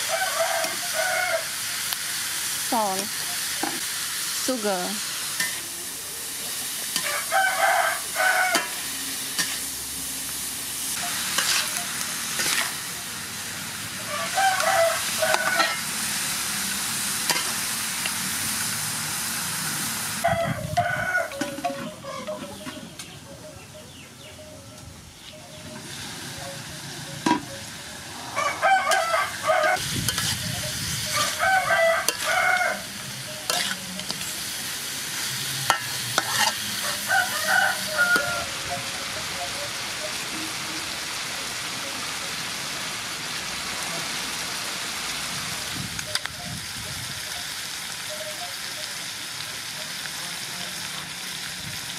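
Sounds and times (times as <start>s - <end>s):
food sizzling in a wok: 0.0s - 23.2s, 25.1s - 51.9s
metal spatula scraping pan: 11.0s - 12.8s, 15.3s - 15.9s, 33.4s - 34.3s, 35.7s - 36.8s.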